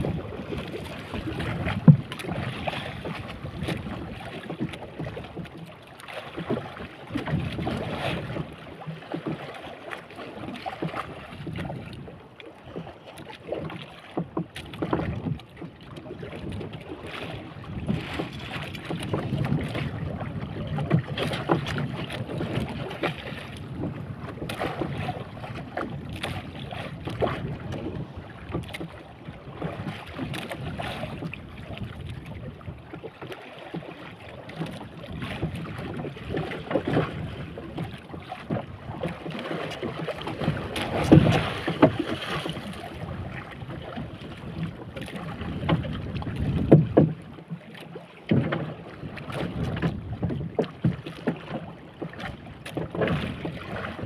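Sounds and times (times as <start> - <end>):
wind on microphone: 0.0 - 4.7, 16.1 - 32.9, 40.4 - 47.2, 49.1 - 50.6
water splashing against boat hull: 0.0 - 54.0.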